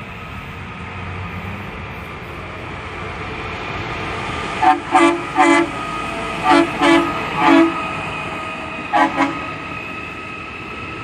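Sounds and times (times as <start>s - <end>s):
rail machine running noise: 0.0s - 11.0s
train horn short toots: 4.6s - 5.8s, 6.4s - 8.0s, 8.9s - 9.6s.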